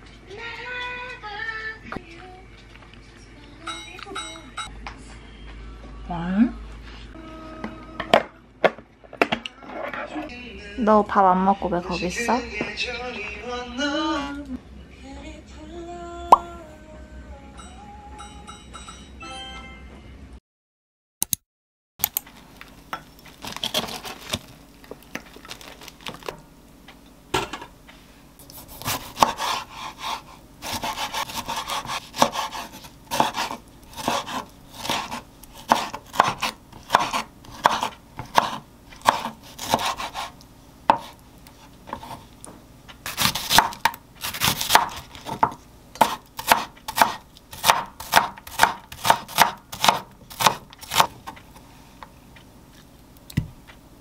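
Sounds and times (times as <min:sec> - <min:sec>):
knife chopping on wooden board: 0:28.7 - 0:40.3, 0:40.9 - 0:41.2, 0:41.9 - 0:42.2, 0:43.0 - 0:51.4.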